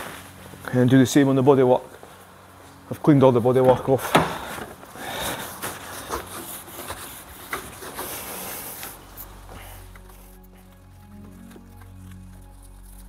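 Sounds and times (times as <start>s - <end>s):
cloth wiping car bodywork: 3.9s - 10.7s.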